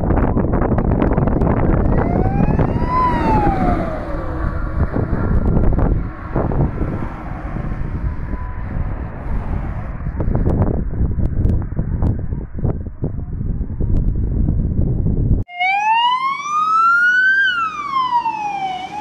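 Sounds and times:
fire engine siren wailing: 0:00.0 - 0:09.9, 0:15.5 - 0:19.0
wind rumble on microphone: 0:00.0 - 0:15.5.

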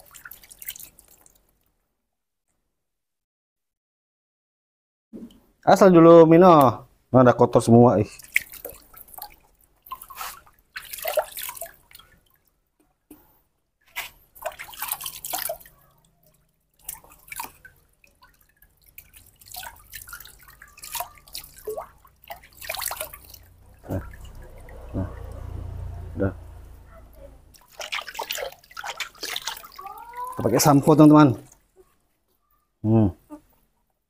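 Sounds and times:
water splashing in a plastic basin: 0:00.0 - 0:01.7, 0:08.0 - 0:31.8.

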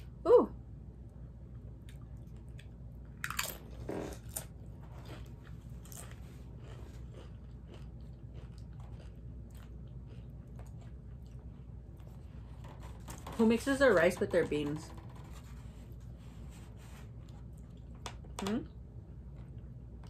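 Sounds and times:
crunchy chewing: 0:01.9 - 0:12.5
crunching tortilla chip: 0:03.2 - 0:10.9.

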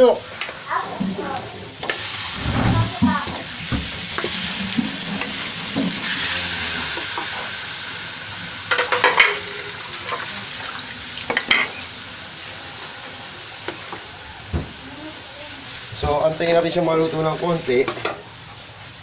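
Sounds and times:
chicken sizzling in hot oil: 0:00.0 - 0:19.0
spatula scraping a wok: 0:02.0 - 0:03.3, 0:05.9 - 0:07.7, 0:11.0 - 0:12.0.

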